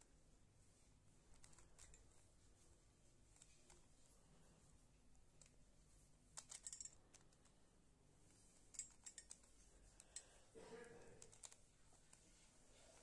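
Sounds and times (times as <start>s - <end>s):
puzzle cube plastic clicks: 11.2s - 11.6s.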